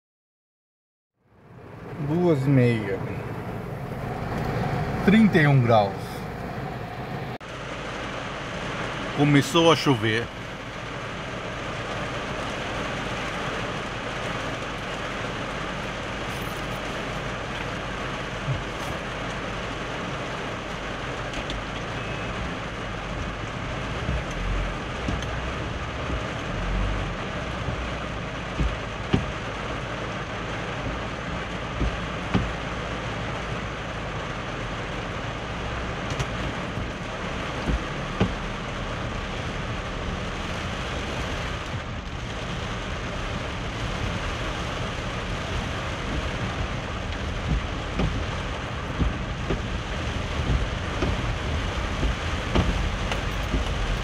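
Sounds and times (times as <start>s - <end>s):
heavy rain on car roof: 1.4s - 54.0s
short low thumps: 23.1s - 29.4s, 45.9s - 54.0s.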